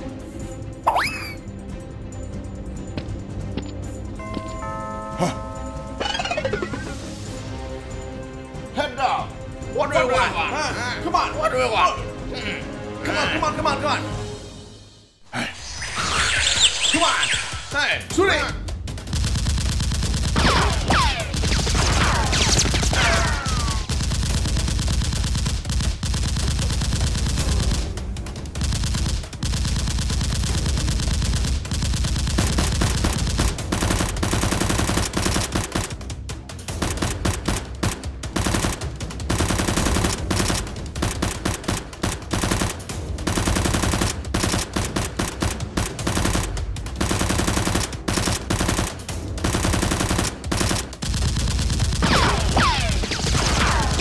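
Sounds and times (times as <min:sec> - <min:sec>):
automatic gunfire: 0:19.0 - 0:36.0, 0:36.7 - 0:54.0.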